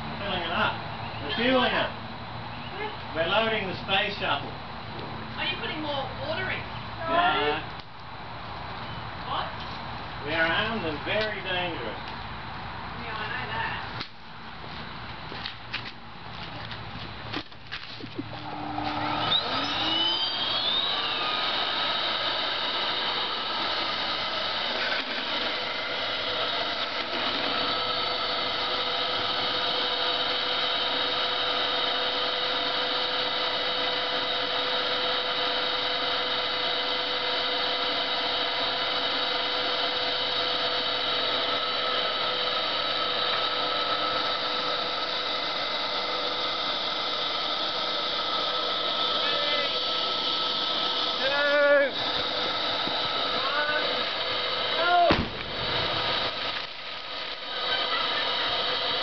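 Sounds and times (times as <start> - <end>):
vacuum cleaner motor whine: 18.2 - 59.0.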